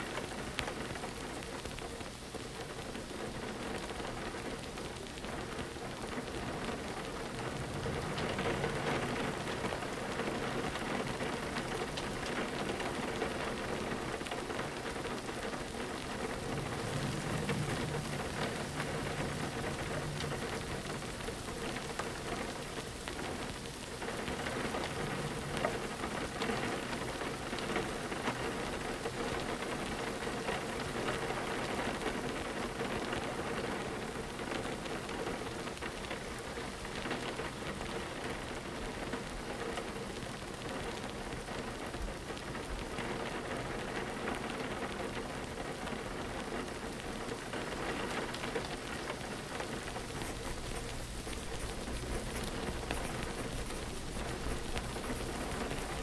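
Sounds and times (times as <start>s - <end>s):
rain pattering on a window: 0.0s - 56.0s
soft low rumble: 16.1s - 22.4s.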